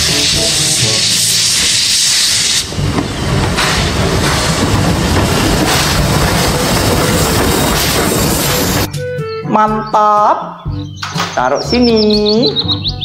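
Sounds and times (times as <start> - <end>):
steam hissing: 0.0 - 8.9
steam locomotive rumbling: 0.0 - 9.1.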